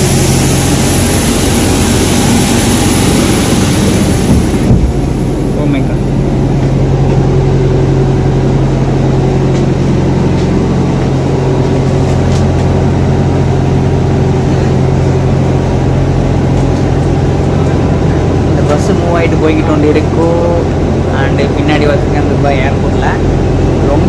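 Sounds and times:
bus engine hum: 0.0 - 24.0.

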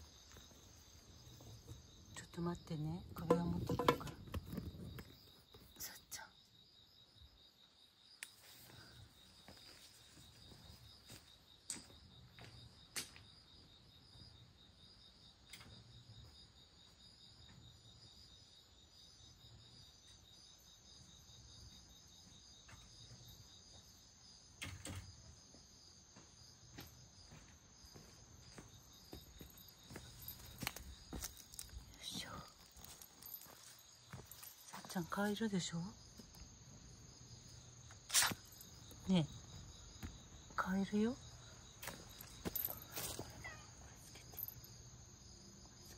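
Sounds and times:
higher-pitched insect chirping: 0.0 - 45.9
insect trilling: 37.8 - 39.6.

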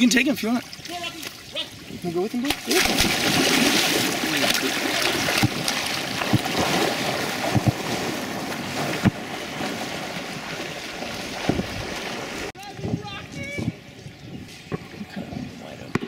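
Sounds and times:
water sloshing and splashing: 0.0 - 12.6.

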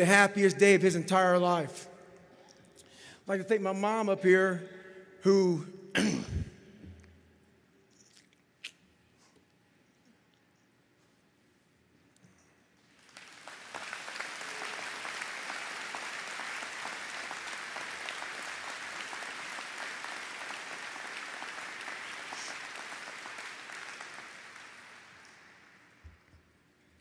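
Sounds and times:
audience applauding: 12.9 - 26.0.

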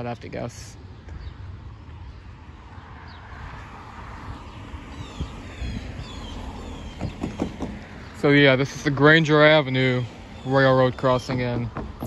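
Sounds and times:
car passing: 1.4 - 12.0.

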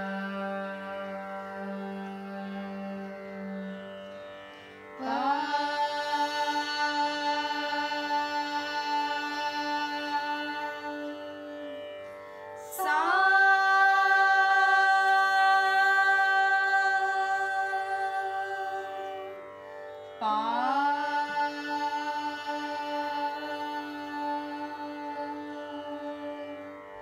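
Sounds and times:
shruti drone: 0.0 - 27.0
woman singing long notes: 5.0 - 11.6, 12.6 - 19.4, 20.2 - 26.7.

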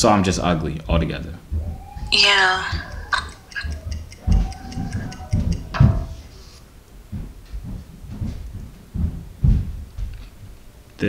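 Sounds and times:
clock ticking fast: 2.2 - 6.0.

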